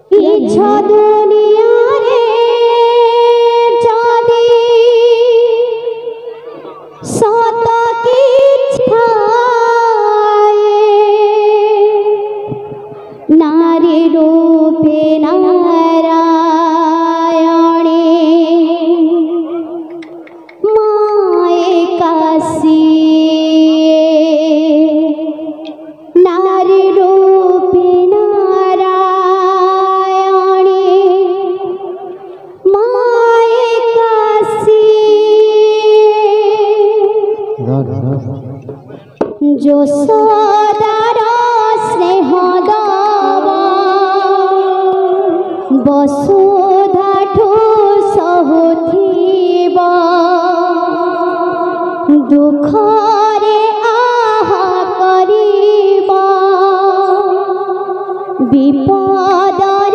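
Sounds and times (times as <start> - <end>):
woman singing through pa: 0.0 - 37.6, 39.3 - 59.9.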